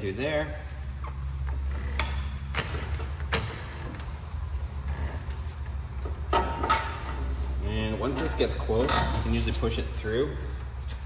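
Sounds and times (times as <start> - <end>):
steady low hum: 0.0 - 11.0
metallic clicks and knocks: 5.2 - 7.3.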